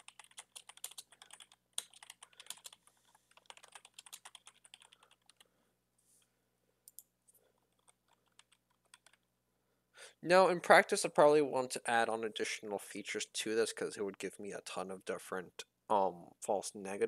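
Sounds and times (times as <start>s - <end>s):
computer keyboard typing: 0.0s - 5.4s, 6.9s - 9.3s.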